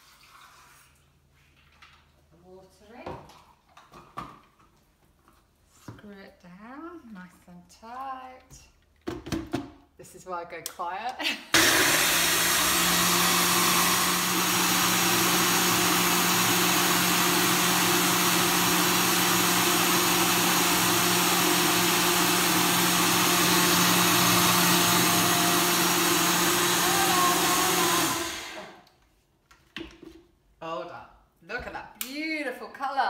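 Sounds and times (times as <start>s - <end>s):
blender running: 11.6s - 28.8s.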